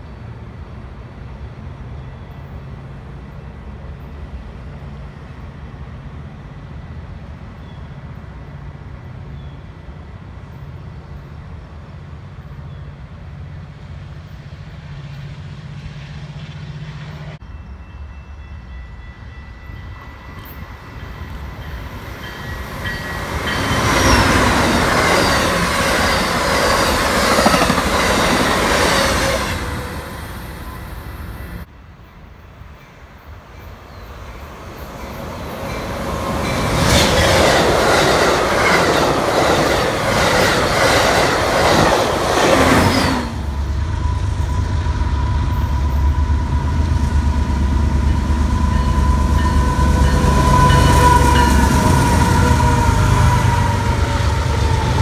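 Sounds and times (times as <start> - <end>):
train rumbling past: 0.0 - 55.0
rail clatter: 21.6 - 30.2, 34.7 - 43.6
high wheel squeal: 22.2 - 31.7, 48.0 - 55.0.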